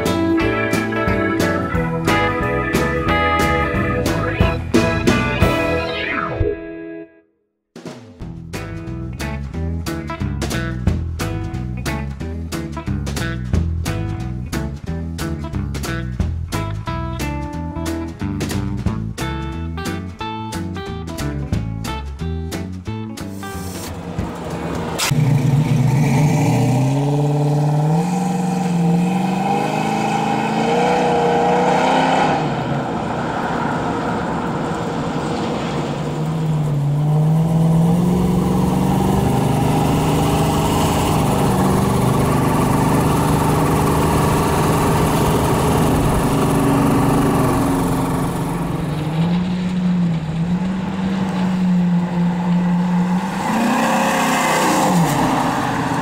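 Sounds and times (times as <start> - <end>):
car engine accelerating: 23.3 - 56.0.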